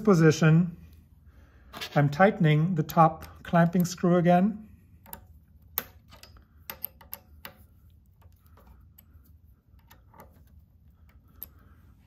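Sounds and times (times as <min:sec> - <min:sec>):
screw being tightened clicking: 0:05.0 - 0:11.6.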